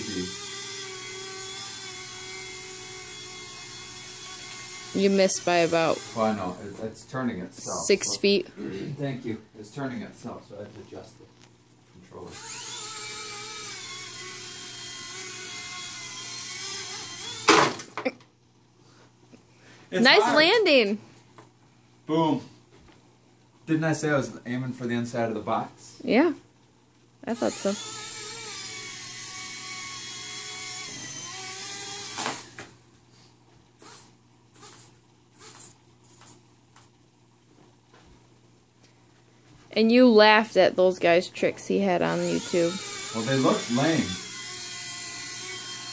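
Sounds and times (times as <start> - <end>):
rc helicopter motor whining: 0.0 - 6.8, 12.2 - 18.1, 27.3 - 32.8, 33.8 - 36.9, 42.0 - 45.9
helicopter crashing into cardboard box: 17.5 - 17.9.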